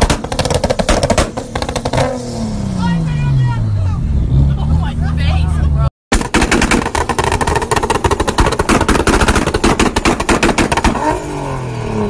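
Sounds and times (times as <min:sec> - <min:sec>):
car exhaust popping and banging: 0:00.0 - 0:02.4, 0:06.1 - 0:11.6.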